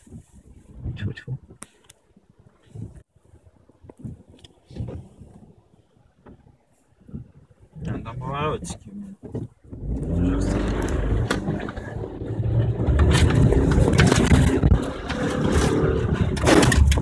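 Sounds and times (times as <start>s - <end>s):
car engine under load: 2.8s - 17.0s
tyres rumbling on gravel: 7.9s - 17.0s
suspension knocks and jolts: 9.8s - 17.0s.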